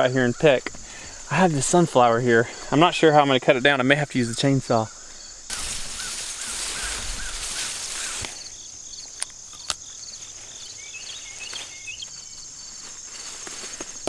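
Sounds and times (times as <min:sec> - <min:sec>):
crickets chirping: 0:00.0 - 0:14.0
leafy plants rustling: 0:04.1 - 0:14.0
plant stems snapping: 0:05.5 - 0:08.5, 0:09.1 - 0:10.0.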